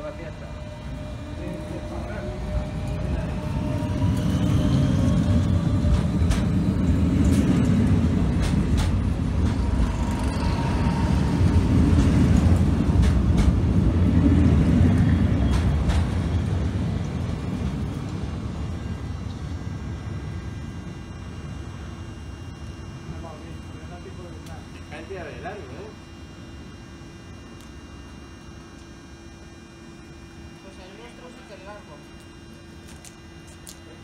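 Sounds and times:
train wheels rumbling on rails: 0:00.0 - 0:20.8
sharp rail clicks: 0:08.4 - 0:09.9, 0:12.0 - 0:13.6.

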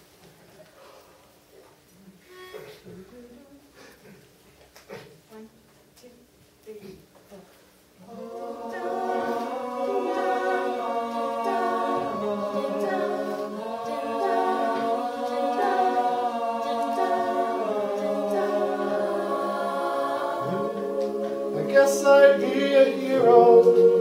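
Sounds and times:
a cappella group singing harmony: 0:08.0 - 0:24.0.

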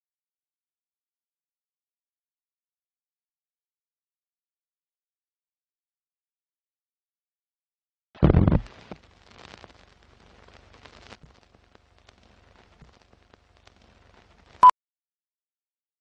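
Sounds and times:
film crackle and clicks: 0:08.4 - 0:14.6.

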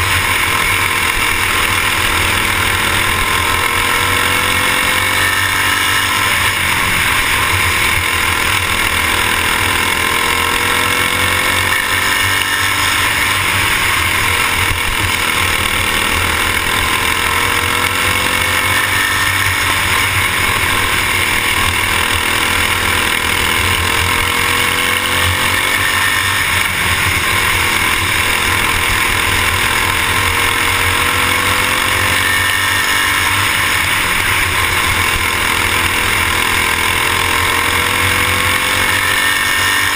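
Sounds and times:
racing kart engine: 0:00.0 - 0:39.9.

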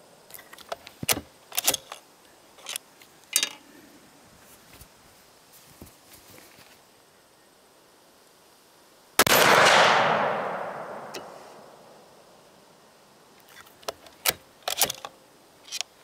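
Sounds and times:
shotgun shot: 0:09.2 - 0:11.9.

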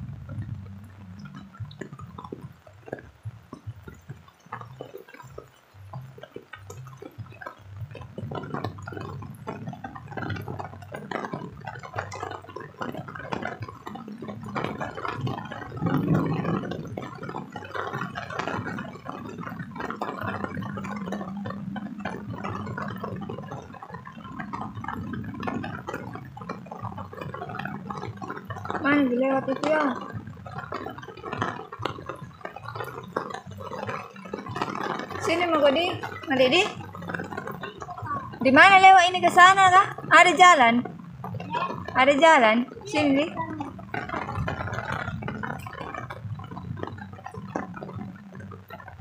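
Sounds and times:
low rumble: 0:00.0 - 0:04.7, 0:05.8 - 0:31.6
rain pattering and dripping: 0:00.0 - 0:49.0.

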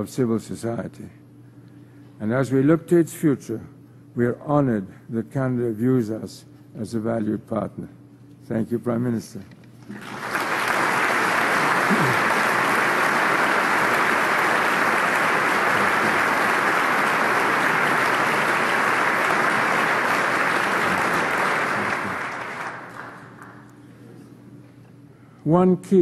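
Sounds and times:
audience applauding: 0:09.9 - 0:23.7.

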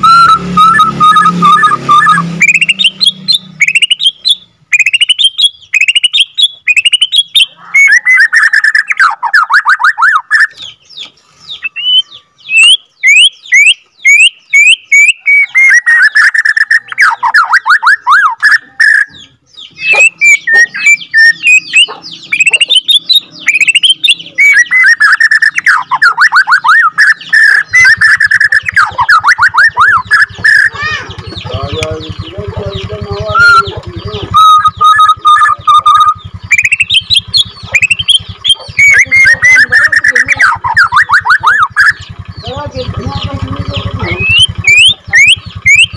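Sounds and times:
bird singing whistles and trills: 0:00.0 - 0:45.9.

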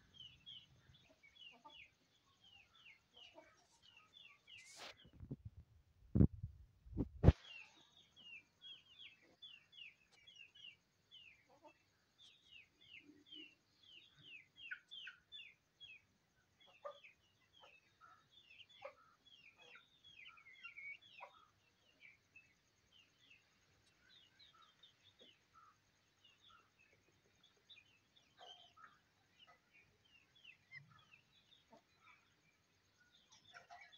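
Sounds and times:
chickens clucking: 0:00.5 - 0:01.9, 0:26.8 - 0:32.4, 0:33.1 - 0:33.9
chicks peeping: 0:33.1 - 0:33.9.

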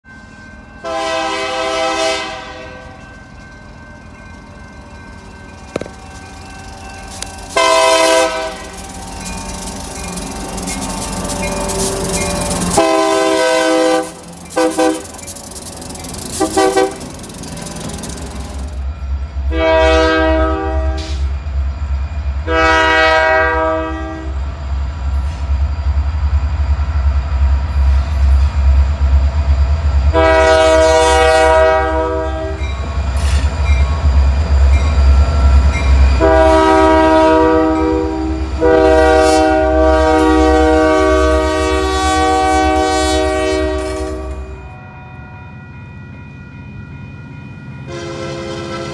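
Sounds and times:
train rolling by: 0:00.0 - 0:48.9
locomotive air horn: 0:00.8 - 0:03.0, 0:07.5 - 0:08.8, 0:11.3 - 0:15.2, 0:16.3 - 0:17.1, 0:19.5 - 0:21.3, 0:22.4 - 0:24.4, 0:30.1 - 0:32.6, 0:36.2 - 0:45.2, 0:47.9 - 0:48.9
diesel engine rumble: 0:02.9 - 0:19.4.

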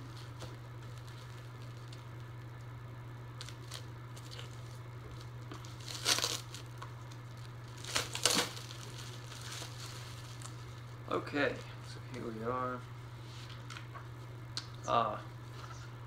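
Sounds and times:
steady low hum: 0:00.0 - 0:16.0
plastic shrink-wrap tearing: 0:00.1 - 0:02.2, 0:03.4 - 0:10.7.

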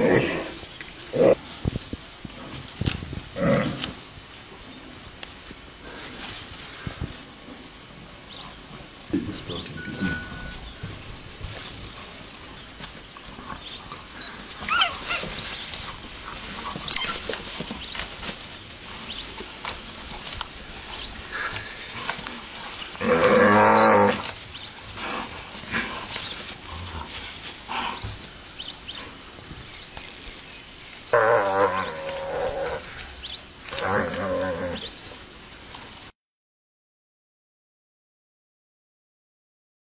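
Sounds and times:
wild dogs chirping and squealing: 0:09.3 - 0:35.2
antelope distress bellow: 0:14.6 - 0:15.6, 0:23.0 - 0:24.3, 0:31.1 - 0:33.0.

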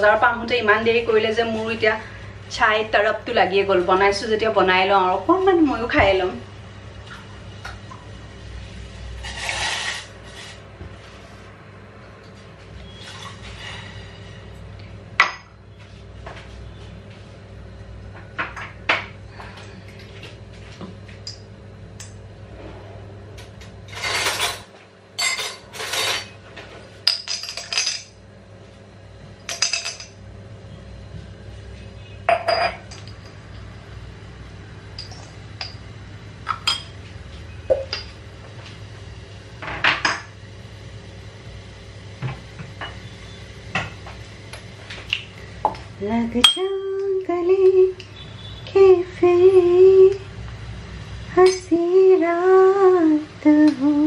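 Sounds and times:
steady low hum: 0:00.0 - 0:54.0
short scrapes: 0:09.2 - 0:10.6.

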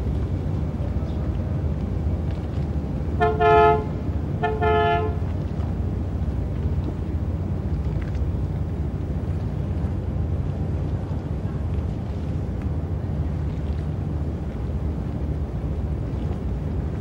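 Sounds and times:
boat engines: 0:00.0 - 0:17.0
low rumble of traffic: 0:00.0 - 0:17.0
short horn honks: 0:03.2 - 0:05.2.

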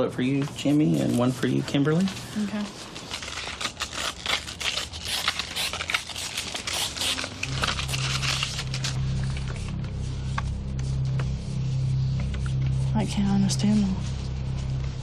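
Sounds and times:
paper rustling and crinkling: 0:00.2 - 0:11.4
low steady hum: 0:05.8 - 0:15.0.

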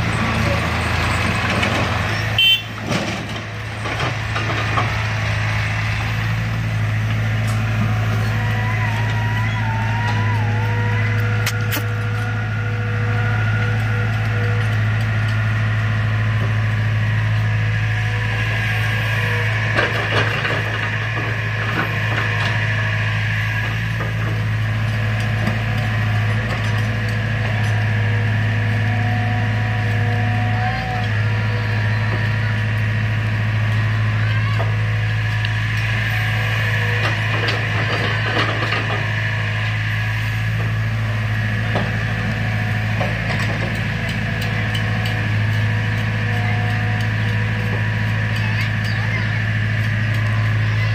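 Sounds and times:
excavator clanks and knocks: 0:00.0 - 0:05.3, 0:19.6 - 0:22.8, 0:23.6 - 0:30.1, 0:36.8 - 0:39.8, 0:40.5 - 0:50.9
diesel engines droning: 0:00.0 - 0:50.9.

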